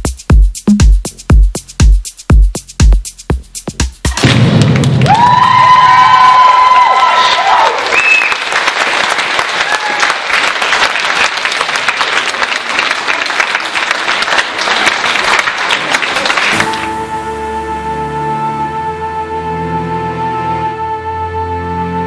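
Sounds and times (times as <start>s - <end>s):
dance music note: 0.0s - 4.1s
audience applauding: 4.6s - 17.0s.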